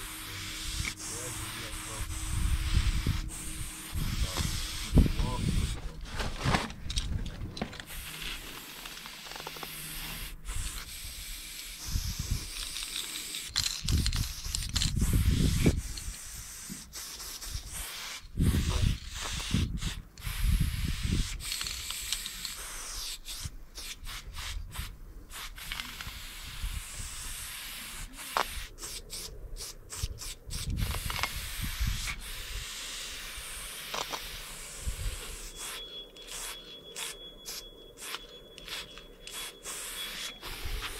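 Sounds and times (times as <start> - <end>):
spray paint can hissing: 0.0 - 6.0, 7.8 - 40.9.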